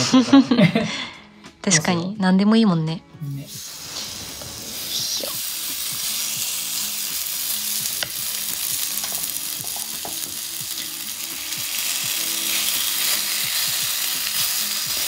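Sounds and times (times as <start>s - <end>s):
batter sizzling on hot plate: 3.5s - 15.0s.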